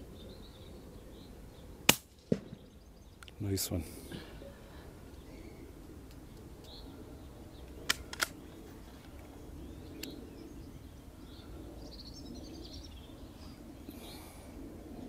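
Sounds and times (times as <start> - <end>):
birds chirping: 0.0 - 15.0
low outdoor background: 0.0 - 15.0
suppressed rifle clicks: 7.7 - 8.5, 10.0 - 10.2.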